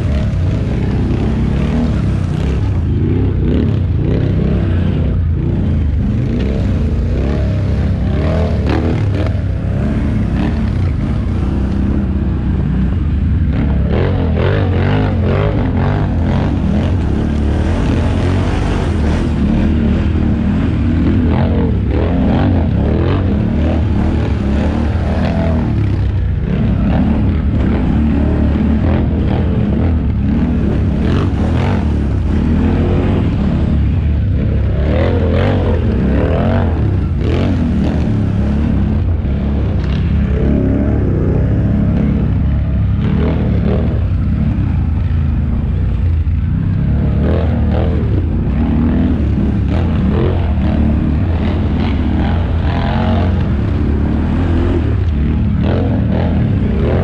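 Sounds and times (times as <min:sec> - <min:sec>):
quad bike engine running: 0:00.0 - 0:57.0.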